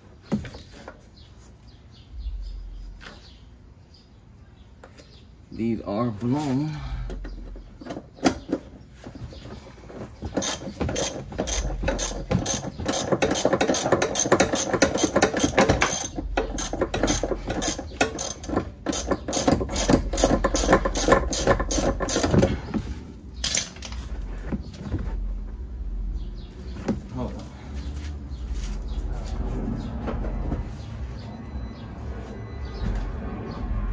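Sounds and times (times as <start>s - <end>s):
ratchet wrench clicking: 10.4s - 22.3s.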